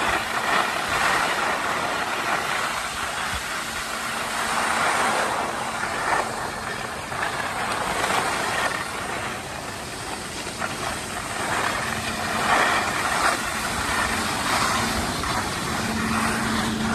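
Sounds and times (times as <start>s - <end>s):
skis scraping over snow: 0.0s - 16.9s.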